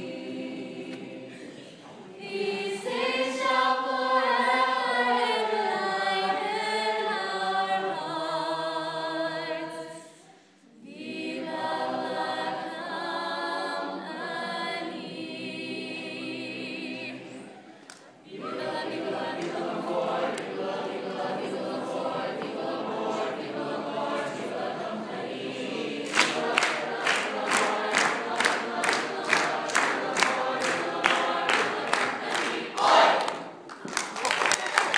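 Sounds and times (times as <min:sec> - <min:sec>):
choir singing a cappella: 0:00.0 - 0:34.1
sharp claps: 0:26.0 - 0:34.9.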